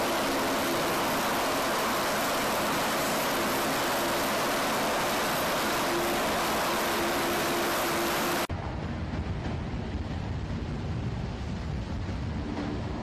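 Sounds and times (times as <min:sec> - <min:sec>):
hovercraft rushing noise: 0:00.0 - 0:13.0
dull rumble: 0:08.3 - 0:13.0.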